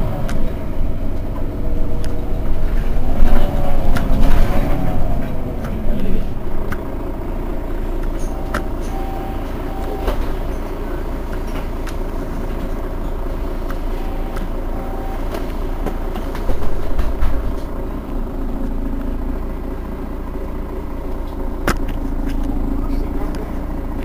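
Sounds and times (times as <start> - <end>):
bus engine idling: 0.0 - 24.0.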